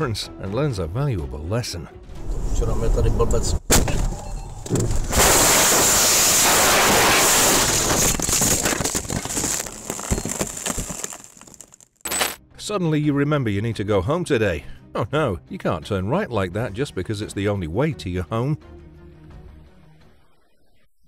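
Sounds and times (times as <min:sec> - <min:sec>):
loud crashing noise: 0:04.8 - 0:11.4.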